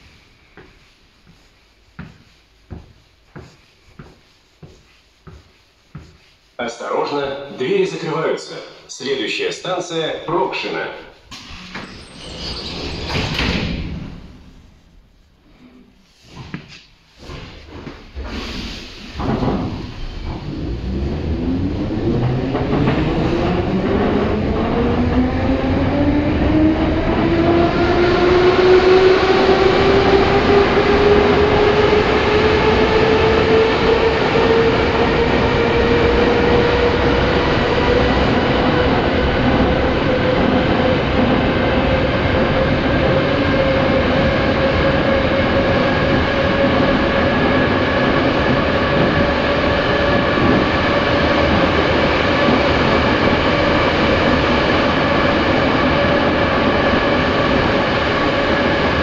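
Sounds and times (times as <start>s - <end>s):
wheels rumbling on rail: 17.2s - 59.0s.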